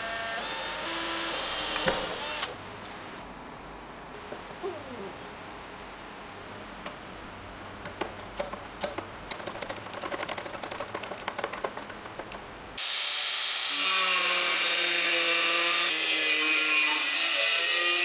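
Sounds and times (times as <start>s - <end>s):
angle grinder cutting steel: 12.8s - 18.0s.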